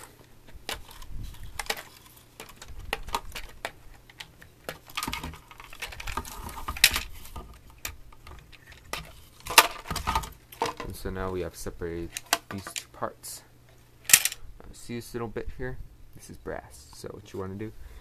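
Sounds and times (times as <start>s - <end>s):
plastic housing rattling: 0.0s - 11.0s.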